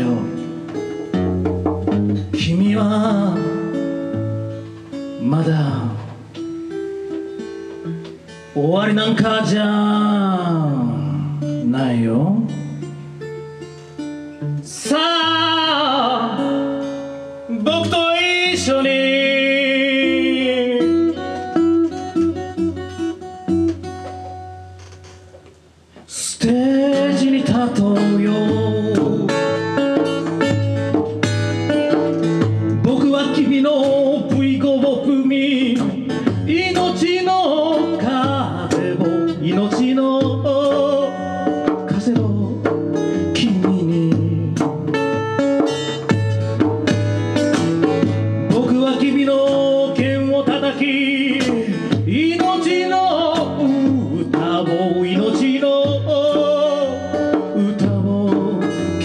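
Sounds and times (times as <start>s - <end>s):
man singing: 0.0s - 1.2s, 2.1s - 7.2s, 7.8s - 13.0s, 14.5s - 23.2s, 26.0s - 30.6s, 32.2s - 46.0s, 48.0s - 59.0s
acoustic guitar: 0.0s - 59.0s
djembe played by hand: 0.3s - 2.7s, 27.9s - 34.8s, 35.7s - 59.0s.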